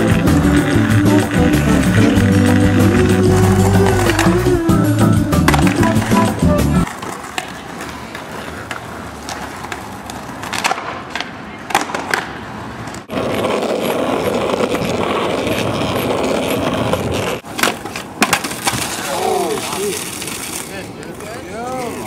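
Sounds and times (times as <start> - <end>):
skateboard clacking on concrete: 0.0 - 4.6, 5.4 - 22.0
skateboard wheels rolling: 0.0 - 22.0
skateboard trick pop and clatter: 5.4 - 6.2, 6.8 - 15.0, 16.5 - 20.7.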